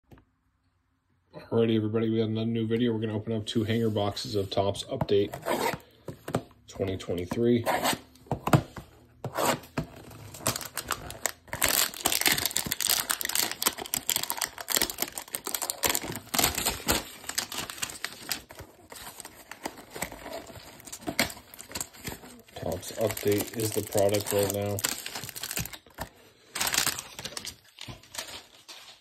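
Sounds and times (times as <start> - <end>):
plastic shrink wrap crackling: 10.2 - 29.0.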